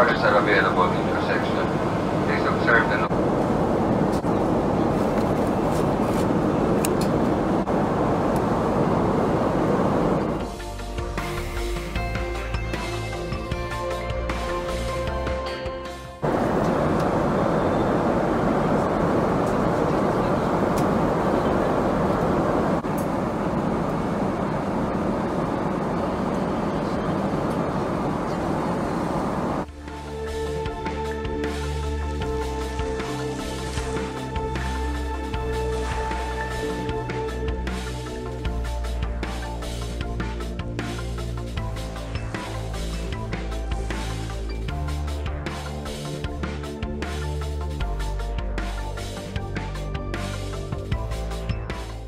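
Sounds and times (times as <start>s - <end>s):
airplane cabin noise: 0.0s - 10.5s, 16.2s - 29.7s
airplane cabin roar in flight: 0.0s - 52.0s.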